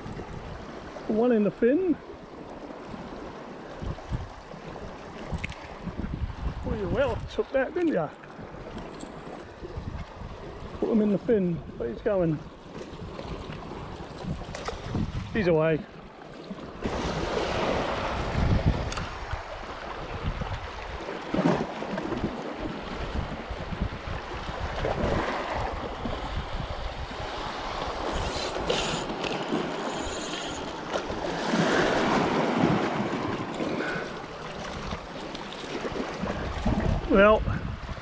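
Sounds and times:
wind on microphone: 0.0s - 0.9s, 2.9s - 7.4s, 8.4s - 15.7s, 16.7s - 38.0s
small waves washing over rocks: 16.2s - 38.0s.

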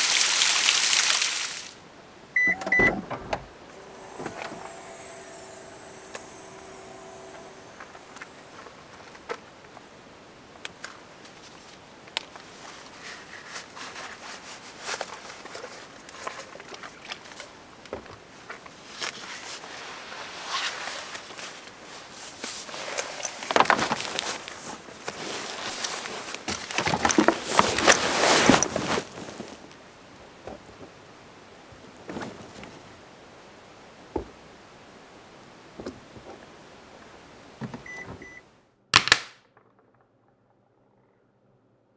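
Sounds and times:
nylon fabric rustling: 18.8s - 29.8s.

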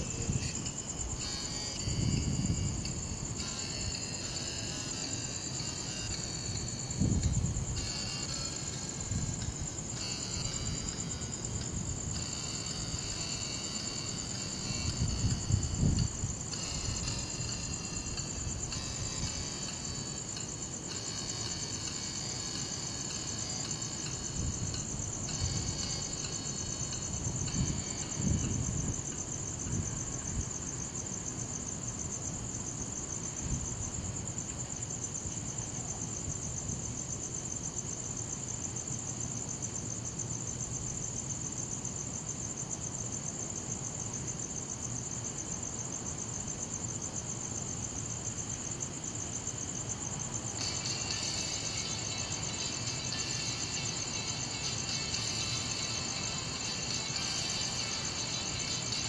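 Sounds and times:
crickets trilling: 0.0s - 59.0s
lower steady sound layer: 50.2s - 59.0s.

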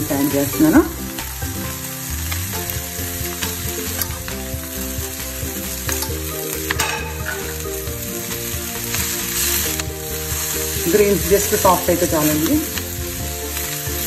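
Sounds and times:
vegetables sizzling in a frying pan: 0.0s - 14.0s
clicks and scrapes in a pan: 3.4s - 4.5s, 5.6s - 7.6s.

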